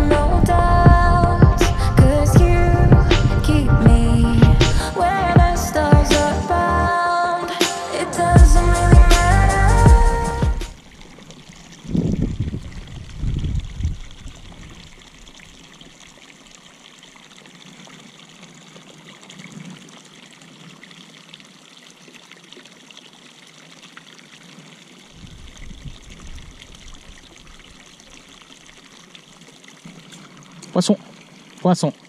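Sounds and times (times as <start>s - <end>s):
low thumps: 0.0s - 6.4s, 8.3s - 10.8s
water pouring into a pond: 10.7s - 32.0s.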